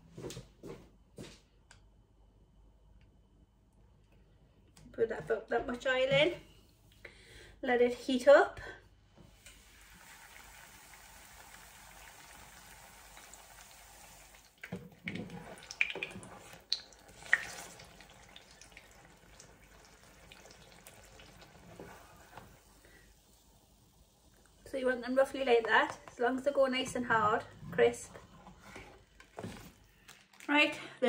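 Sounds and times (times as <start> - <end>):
oil sizzling in a pan: 9.3 - 14.8, 15.4 - 25.6.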